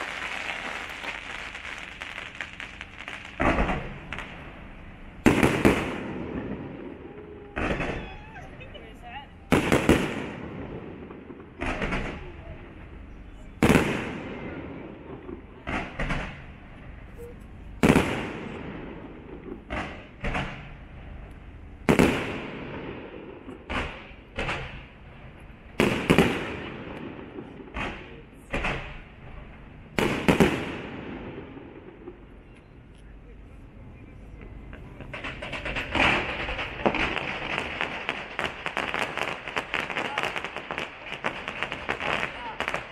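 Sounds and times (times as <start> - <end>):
fireworks shells bursting: 34.7 - 42.9.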